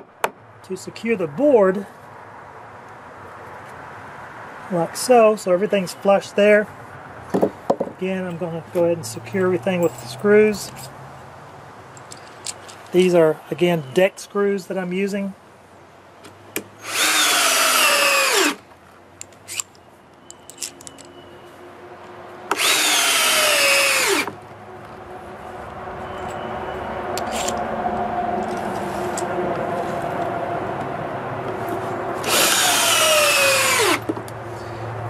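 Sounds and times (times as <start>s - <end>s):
steady background noise: 0.0s - 35.0s
cordless drill driving screws into wood: 16.8s - 18.6s, 22.5s - 24.4s, 32.2s - 34.1s.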